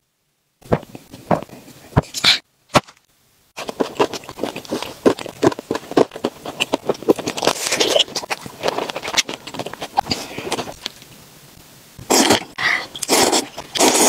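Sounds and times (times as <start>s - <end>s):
crunchy biting and chewing: 3.6s - 11.1s.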